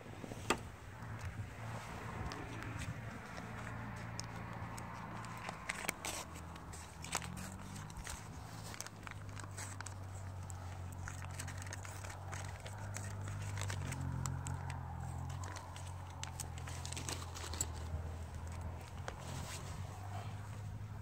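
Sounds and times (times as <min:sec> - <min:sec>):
paper crinkling: 0:02.1 - 0:19.8
small metal clicks: 0:03.2 - 0:19.2.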